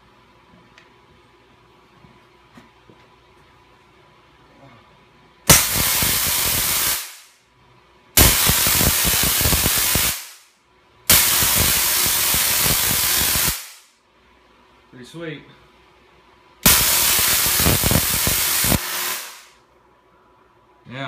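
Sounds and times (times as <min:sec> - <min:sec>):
tesla coil sparks crackling: 0:05.5 - 0:07.4, 0:08.2 - 0:10.5, 0:11.1 - 0:13.9, 0:16.6 - 0:19.6.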